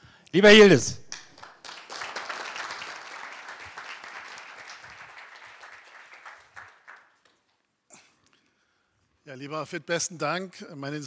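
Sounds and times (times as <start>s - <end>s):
audience applauding: 1.1s - 7.5s.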